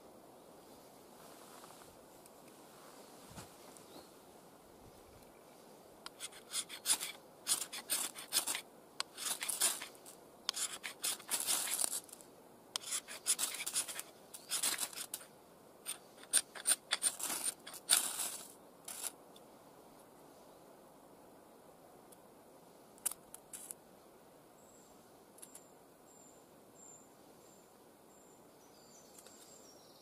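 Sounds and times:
knife scraping ferrocerium rod: 6.1 - 12.2, 12.8 - 15.3, 15.9 - 19.1.

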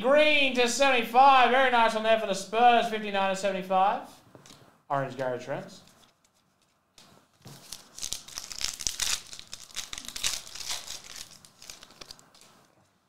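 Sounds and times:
foil wrapper tearing and crinkling: 7.6 - 12.6.

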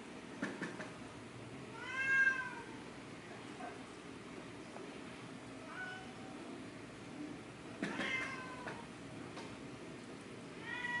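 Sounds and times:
kittens mewing: 7.8 - 8.8.

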